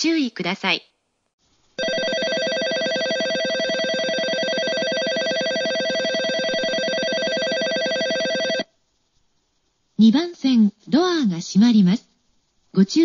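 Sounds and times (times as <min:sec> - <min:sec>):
electronic bell trilling: 0:01.8 - 0:08.6.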